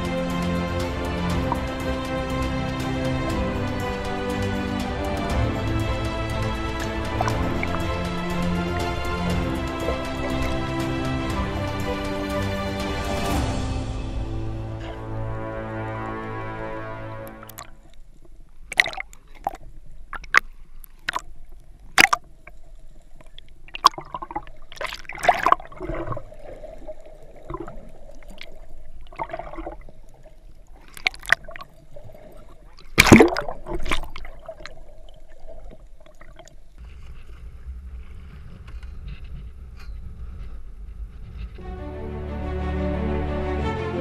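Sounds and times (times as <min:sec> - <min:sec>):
water gurgling underwater: 0:18.7 - 0:20.4, 0:21.9 - 0:36.8.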